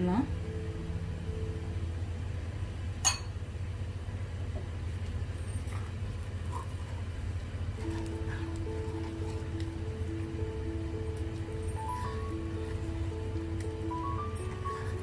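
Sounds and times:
soft background music: 0.0 - 3.2, 7.8 - 15.0
steady low hum: 0.0 - 15.0.

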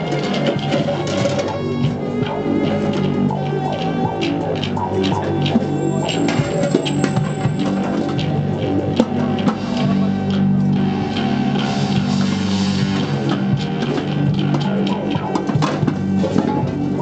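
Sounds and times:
electric guitar plucked notes: 0.0 - 17.0
other instruments playing along: 0.0 - 17.0.

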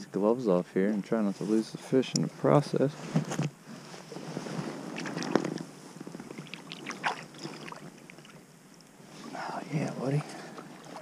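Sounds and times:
water splashing and sloshing: 3.2 - 11.0.

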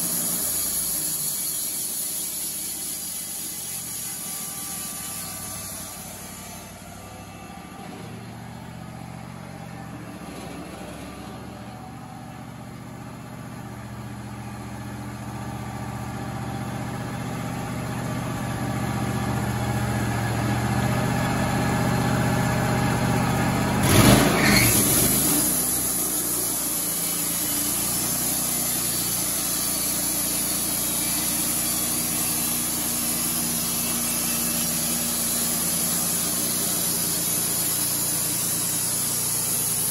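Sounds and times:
band saw blade cutting wood: 0.0 - 6.8, 23.9 - 39.9
sawmill engine hum: 0.0 - 39.9.

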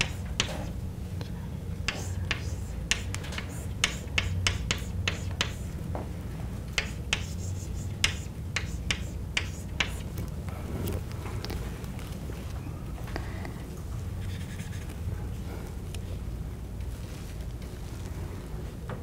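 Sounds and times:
chalk tapping and scratching: 0.0 - 0.8, 1.8 - 5.8, 6.8 - 10.2, 14.2 - 14.9
steady low hum: 0.0 - 19.0.

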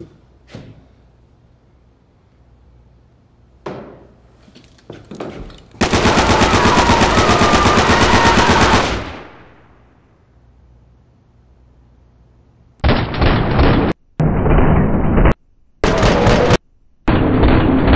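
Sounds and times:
automatic machine-gun fire: 5.8 - 9.8, 12.8 - 17.9
high-pitched ringing tone: 9.2 - 12.8, 13.8 - 17.9.

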